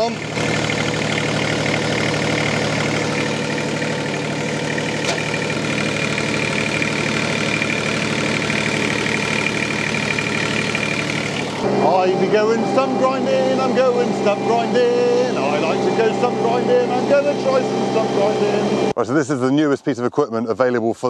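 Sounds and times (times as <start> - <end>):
tractor engine idling: 0.0 - 19.0.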